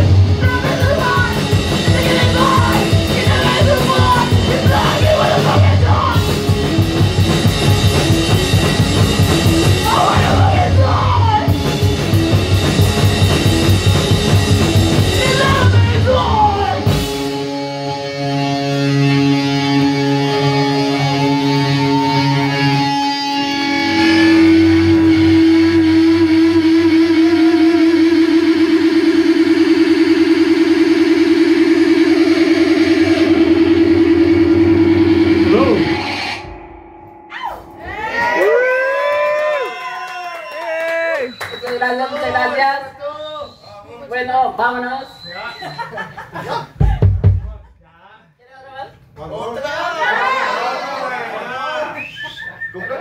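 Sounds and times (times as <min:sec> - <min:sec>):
punk metal band playing: 0:00.0 - 0:39.6
drum kit: 0:00.0 - 0:40.6, 0:46.4 - 0:47.8
guitar drone: 0:00.0 - 0:40.6
person singing into microphone: 0:01.8 - 0:06.2.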